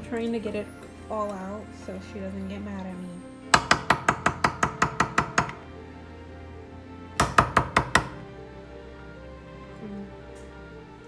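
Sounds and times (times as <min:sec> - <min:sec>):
utensil knocking glass bowl: 0:03.6 - 0:05.6, 0:07.2 - 0:08.2.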